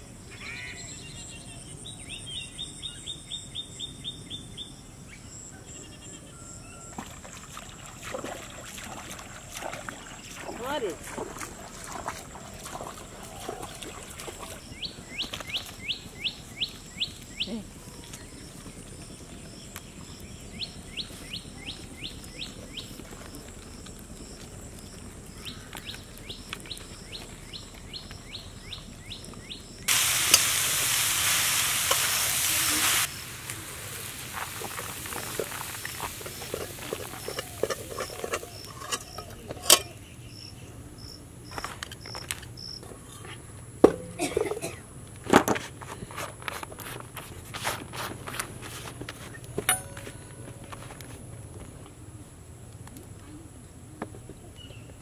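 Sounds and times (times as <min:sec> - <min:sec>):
loud rushing hiss: 0:29.9 - 0:36.4.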